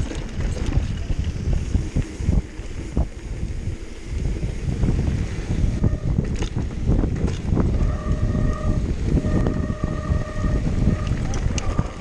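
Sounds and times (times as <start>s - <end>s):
bike rattling over bumps: 0.0s - 12.0s
wind and tyres rumbling: 0.0s - 12.0s
steady buzzing tone: 7.5s - 12.0s.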